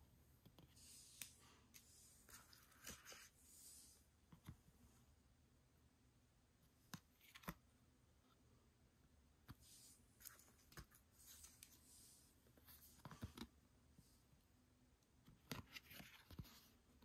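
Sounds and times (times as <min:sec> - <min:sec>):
paper rustling: 0:00.8 - 0:03.4.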